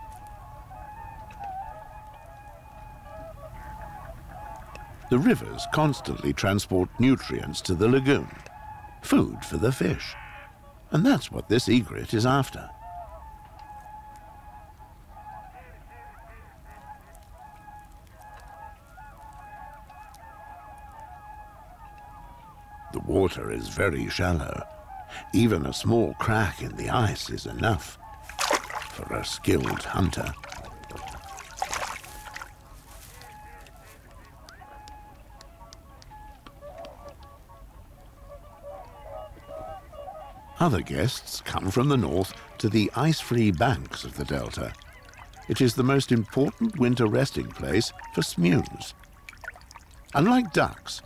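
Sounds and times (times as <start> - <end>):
faint clicks: 0.0 - 0.4, 1.1 - 5.1, 12.8 - 22.5, 28.1 - 38.2
water birds calling: 0.0 - 51.0
water splash: 28.3 - 32.6, 48.9 - 50.2.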